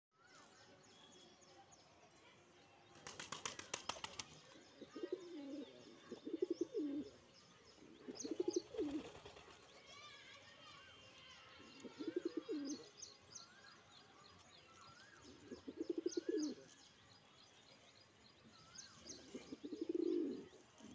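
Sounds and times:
small birds chirping: 0.2 - 20.9
pigeon wings flapping: 2.9 - 4.4
pigeon cooing: 11.9 - 12.8, 15.5 - 16.6, 19.5 - 20.5.

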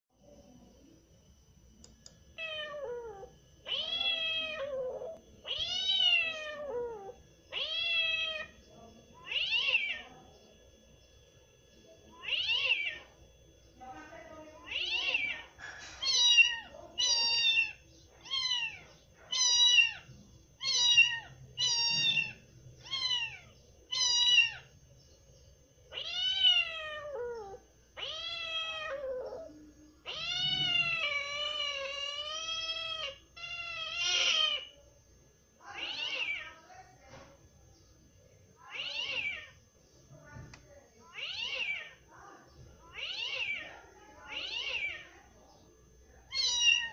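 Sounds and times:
cat meowing: 2.4 - 8.5, 9.2 - 10.1, 12.2 - 13.1, 14.6 - 24.7, 25.9 - 34.8, 35.8 - 36.6, 38.7 - 39.6, 41.1 - 42.0, 42.9 - 43.7, 44.3 - 45.1, 46.3 - 46.9.

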